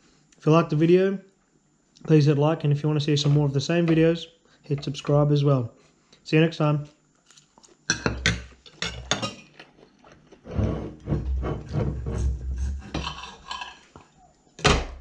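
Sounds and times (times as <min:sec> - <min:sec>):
cutlery clinking on plate: 0:07.9 - 0:09.5.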